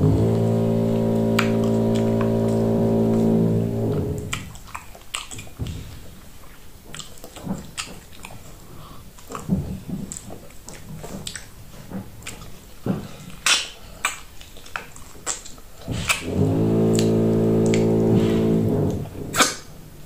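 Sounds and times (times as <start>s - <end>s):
wet chewing and lip-smacking: 4.2s - 16.3s.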